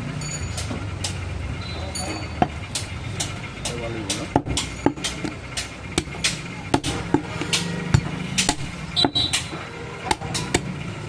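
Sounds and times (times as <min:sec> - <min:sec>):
cleaver chopping on wooden block: 0:02.4 - 0:09.5.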